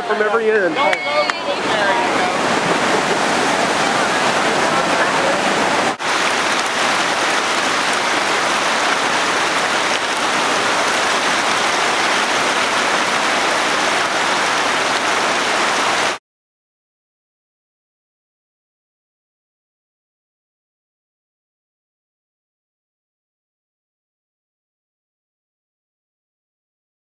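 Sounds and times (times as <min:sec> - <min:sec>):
flood water rushing: 0:00.0 - 0:16.2.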